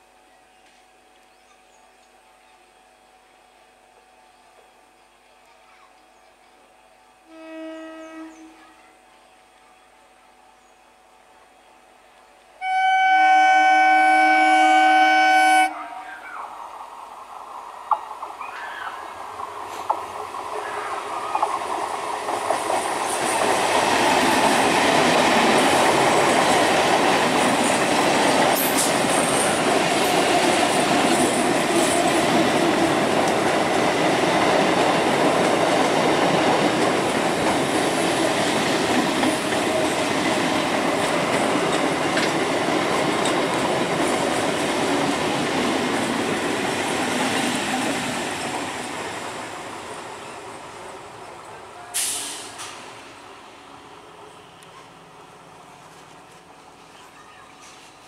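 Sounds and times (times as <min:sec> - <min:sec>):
train wheels on rails: 0:16.5 - 0:58.0.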